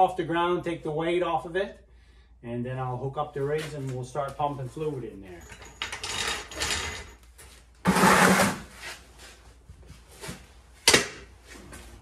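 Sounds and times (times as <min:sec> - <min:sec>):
floor jack rattling scrape: 0:05.6 - 0:07.2, 0:07.8 - 0:09.0.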